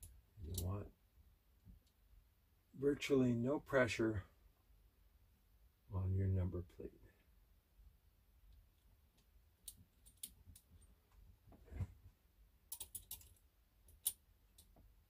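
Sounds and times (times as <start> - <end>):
small metal parts clicking: 9.6 - 10.9, 12.7 - 14.7.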